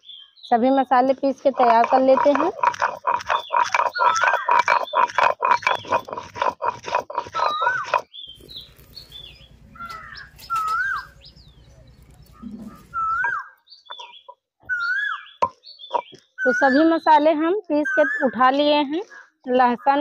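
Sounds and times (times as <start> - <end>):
bird chirping: 0.0 - 20.0
grinding stone strokes: 1.2 - 11.3.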